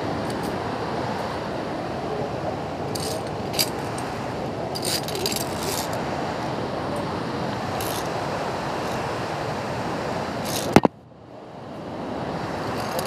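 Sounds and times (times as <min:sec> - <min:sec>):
waterfall rushing: 0:00.0 - 0:13.0
carabiners clinking on steel cable: 0:02.9 - 0:04.1, 0:04.7 - 0:06.0, 0:07.8 - 0:08.1, 0:10.4 - 0:10.8, 0:12.8 - 0:13.0.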